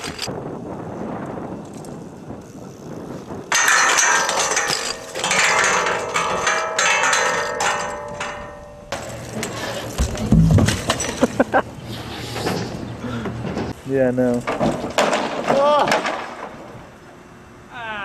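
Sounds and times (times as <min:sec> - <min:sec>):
bike hitting metal rail: 0:03.5 - 0:11.6, 0:14.4 - 0:16.6
metal clattering and scraping: 0:03.5 - 0:13.8
heavy thud: 0:10.0 - 0:11.0.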